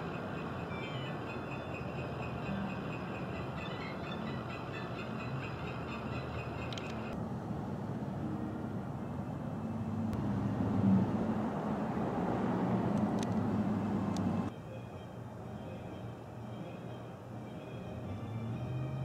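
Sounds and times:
outdoor background: 0.0 - 19.0
car engine with road noise: 6.4 - 14.6.

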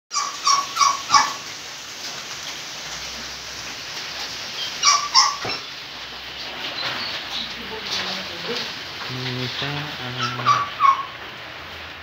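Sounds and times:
short high-pitched animal calls: 0.1 - 1.5, 4.6 - 5.7, 10.0 - 11.2.

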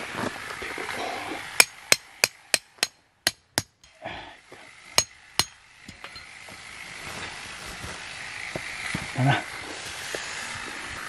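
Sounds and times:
tent peg being hammered: 1.6 - 4.0, 5.0 - 6.3.

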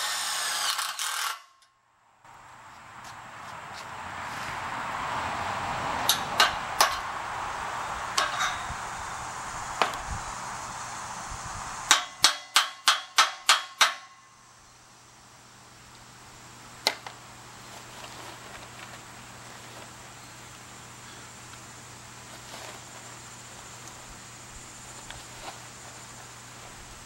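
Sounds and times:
steady rushing noise: 2.3 - 13.4
hammer blows: 6.0 - 10.3, 11.8 - 14.4.

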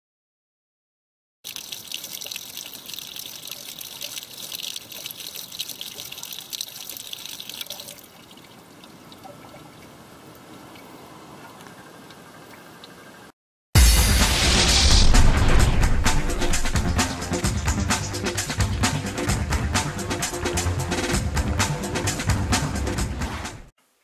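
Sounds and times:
water pouring onto metal: 1.4 - 9.9
loud music: 13.8 - 23.7
faint steady hiss: 23.8 - 24.0.

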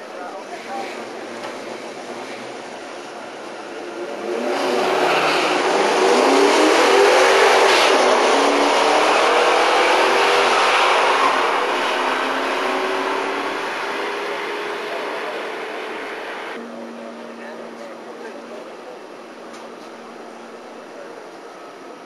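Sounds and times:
car engines revving hard: 0.6 - 16.6.

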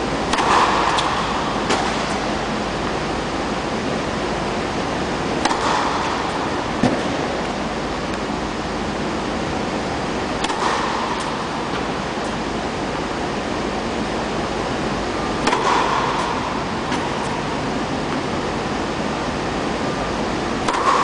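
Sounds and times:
steady rushing fan noise: 0.0 - 21.0
tennis ball struck by racket: 0.3 - 2.2, 5.4 - 7.2, 10.4 - 11.9, 15.4 - 17.4, 20.6 - 21.0.

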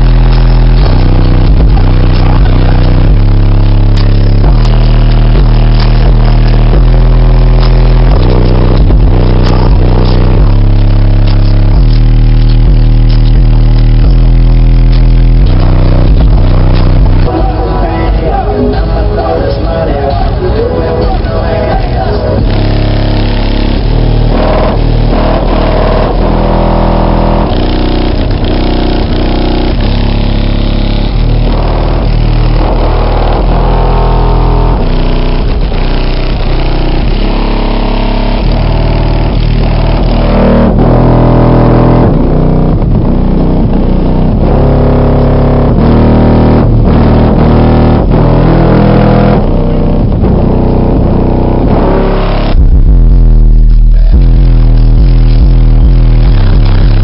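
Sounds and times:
loud bass-heavy music: 0.0 - 57.0.

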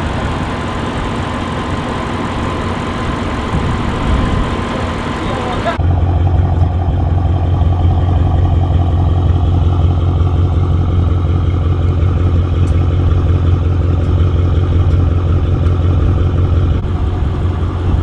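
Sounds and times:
car exhaust idling: 0.0 - 18.0.

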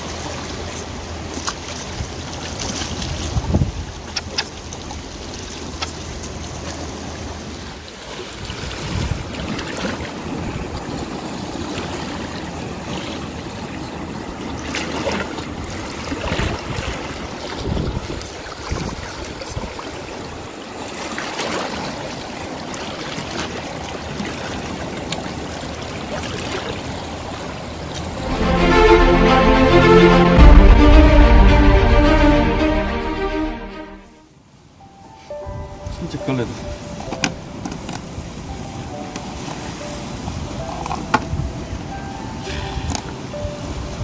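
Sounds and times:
sea waves on rocky shore: 0.0 - 28.2, 36.3 - 44.0
wind buffeting microphone: 2.9 - 4.1, 8.4 - 11.2, 16.2 - 20.4.

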